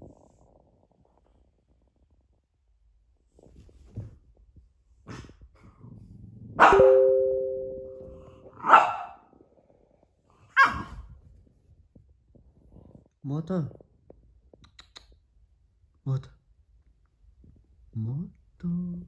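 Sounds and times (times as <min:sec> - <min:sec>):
dog barking: 0:06.6 - 0:07.0, 0:08.6 - 0:09.2, 0:10.6 - 0:10.9
two-note ringing tone: 0:06.7 - 0:08.5.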